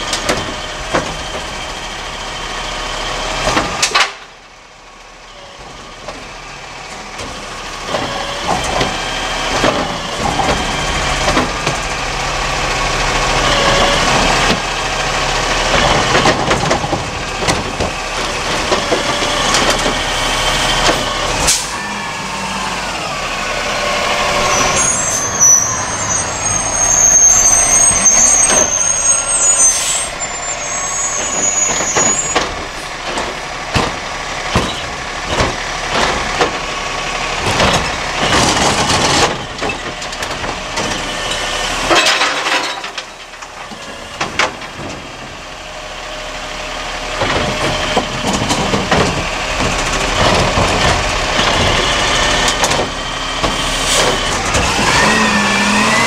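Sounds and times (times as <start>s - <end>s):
diesel engine running: 0.0s - 56.0s
high squeal: 21.0s - 33.0s, 51.3s - 56.0s
air brakes hissing: 21.4s - 22.6s, 24.2s - 33.0s, 53.5s - 54.3s
hydraulic arm knocks and bangs: 31.7s - 36.6s.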